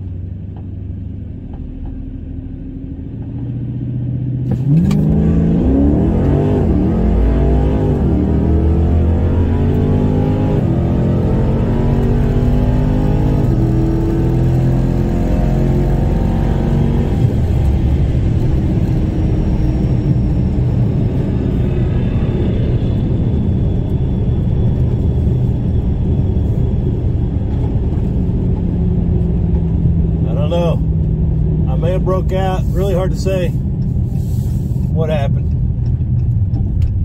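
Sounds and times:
racing car engines accelerating: 4.4s - 24.9s.

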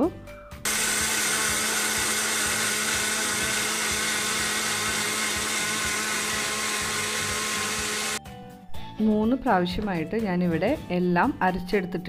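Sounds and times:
mixer grinder running: 0.7s - 8.2s.

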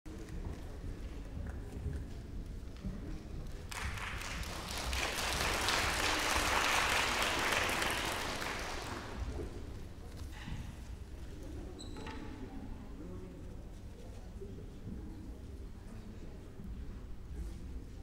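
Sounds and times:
audience applauding: 3.7s - 9.3s.

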